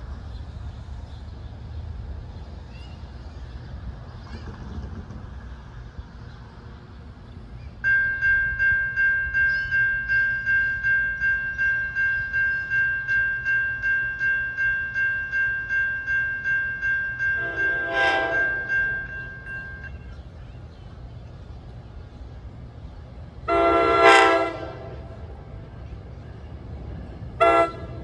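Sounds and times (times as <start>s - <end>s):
railroad crossing bell ringing: 7.8s - 20.3s
train horn blast: 17.4s - 18.8s, 23.5s - 25.2s, 27.4s - 28.0s.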